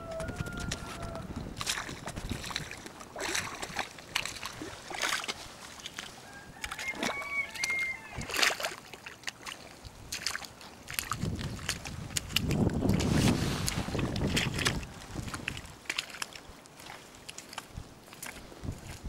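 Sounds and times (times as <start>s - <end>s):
wind buffeting microphone: 0.0s - 5.5s, 8.0s - 8.5s, 10.9s - 16.6s, 17.6s - 19.0s
footsteps squelching through mud: 0.0s - 19.0s.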